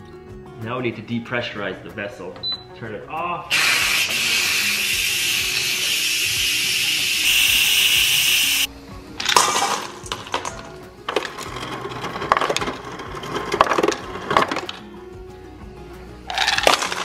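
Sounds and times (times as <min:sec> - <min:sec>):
steam venting hiss: 0:03.5 - 0:08.7
ice cubes clattering into metal bowl: 0:09.2 - 0:14.8, 0:16.3 - 0:17.0.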